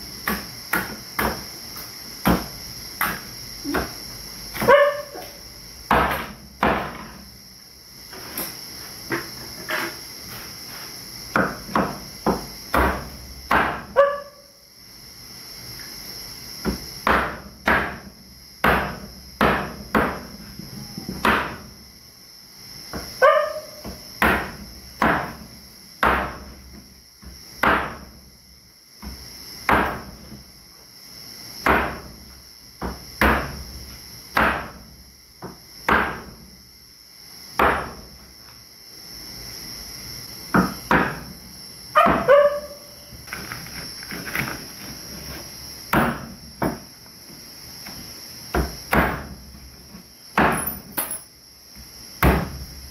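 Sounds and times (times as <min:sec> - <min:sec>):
crickets trilling: 0:00.0 - 0:52.9
knife chopping through bone: 0:11.3 - 0:13.9, 0:18.6 - 0:20.2, 0:21.2 - 0:21.6, 0:24.2 - 0:25.4, 0:26.0 - 0:26.4, 0:27.6 - 0:28.0, 0:29.7 - 0:30.1, 0:31.6 - 0:32.0, 0:34.4 - 0:34.8, 0:45.9 - 0:46.8.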